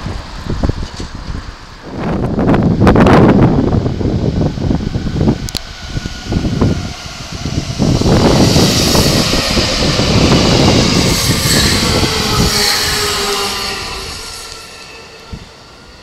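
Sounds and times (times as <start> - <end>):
electric train passing: 0.0 - 16.0
wind noise on microphone: 0.0 - 16.0.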